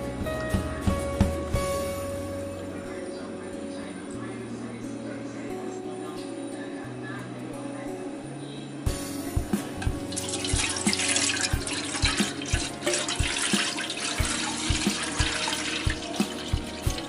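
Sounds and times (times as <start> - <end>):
background music beat: 0.0 - 2.7, 8.9 - 17.0
liquid pouring into a pot: 9.9 - 17.0.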